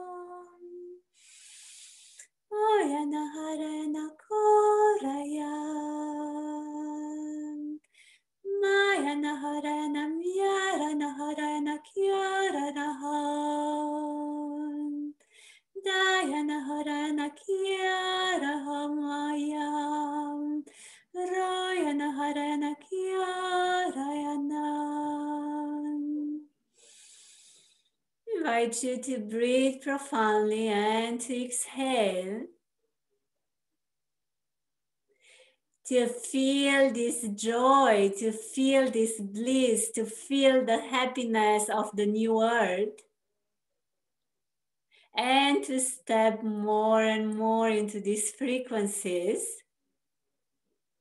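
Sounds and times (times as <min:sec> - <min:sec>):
woman singing wordless chant: 0:00.0 - 0:01.0, 0:02.5 - 0:07.9, 0:08.5 - 0:15.2, 0:15.8 - 0:26.5, 0:28.3 - 0:32.5, 0:35.9 - 0:43.0, 0:45.2 - 0:49.6.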